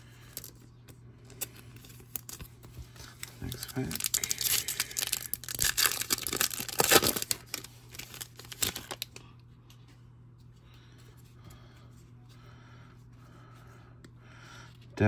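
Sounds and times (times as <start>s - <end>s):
plastic wrapper tearing and crinkling: 1.4s - 9.2s.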